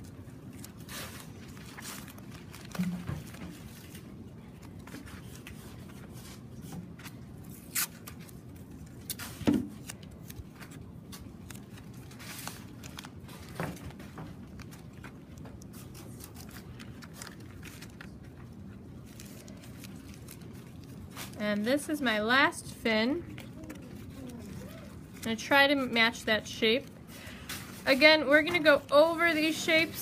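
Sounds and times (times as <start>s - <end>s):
newspaper crinkling: 0.0s - 22.2s, 23.3s - 30.0s
masking tape being pulled: 7.5s - 8.3s.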